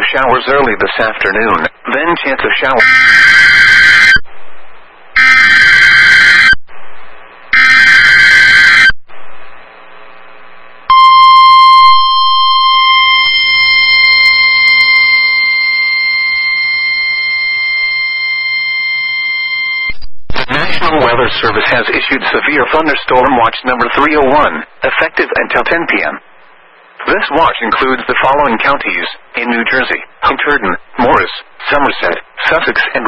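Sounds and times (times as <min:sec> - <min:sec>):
harsh buzzing data bursts: 0:01.4 - 0:04.2, 0:05.1 - 0:06.6, 0:07.4 - 0:21.8.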